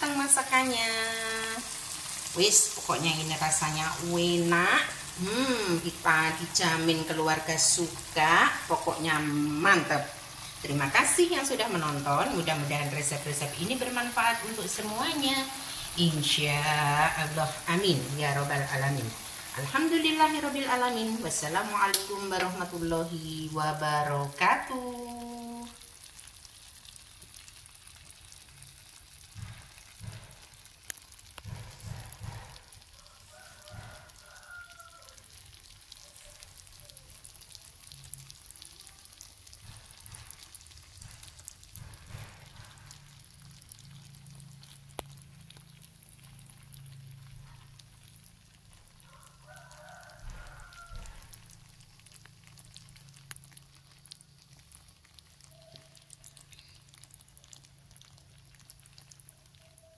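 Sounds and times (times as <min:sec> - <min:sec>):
faint sizzling in a pan: 0:00.0 - 0:59.9
rooster crowing: 0:32.2 - 0:35.3, 0:49.0 - 0:51.5.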